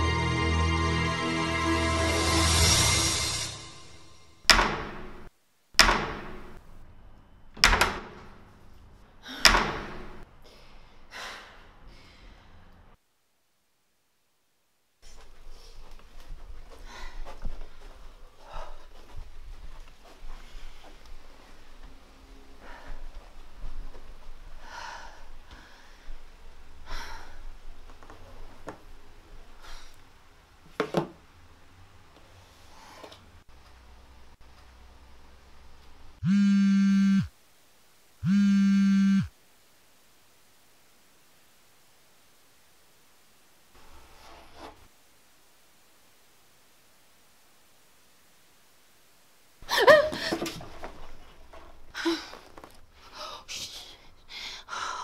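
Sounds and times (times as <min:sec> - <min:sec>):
short sharp sound: 0:00.0 - 0:04.5
door banging loudly: 0:04.5 - 0:06.6, 0:07.6 - 0:08.4, 0:09.4 - 0:10.2
woman gasping breaths: 0:16.7 - 0:17.5, 0:24.6 - 0:26.2, 0:26.8 - 0:27.4, 0:53.0 - 0:55.0.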